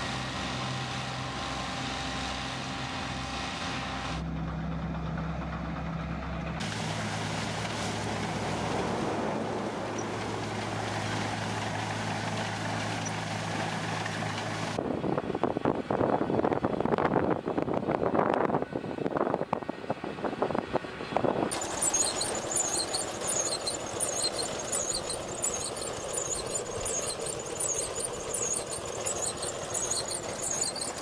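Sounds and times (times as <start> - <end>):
tractor engine: 0.0 - 14.8, 21.5 - 31.0
harvester engine and cutting: 0.0 - 15.6, 20.0 - 31.0.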